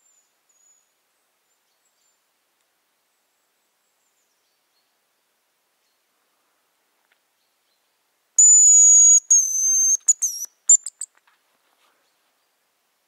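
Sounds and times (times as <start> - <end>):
high-pitched decoy whistle: 8.4 - 11.0.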